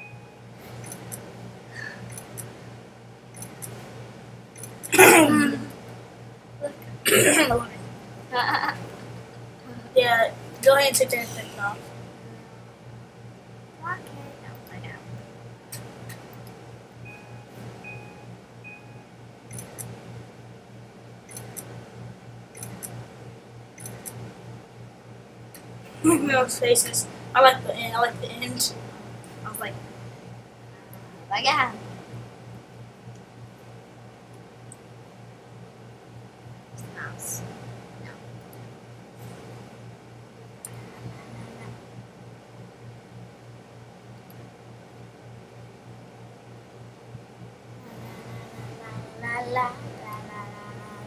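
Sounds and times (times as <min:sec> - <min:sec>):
person's voice burst: 0:04.9 - 0:05.7
short high beeps: 0:17.0 - 0:19.6.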